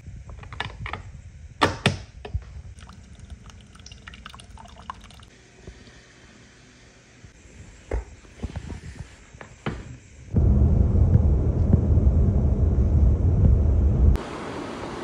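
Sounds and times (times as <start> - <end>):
coffee pouring into mug: 2.8 - 5.3.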